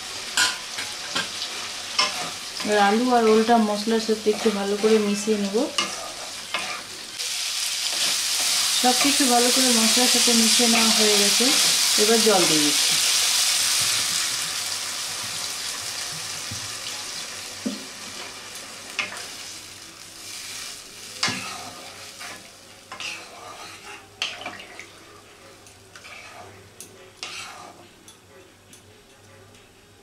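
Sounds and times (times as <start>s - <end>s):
sizzling hiss in a pan: 0.0s - 28.0s
spatula scraping and knocking pan: 21.2s - 24.6s, 26.0s - 26.5s, 27.2s - 27.8s.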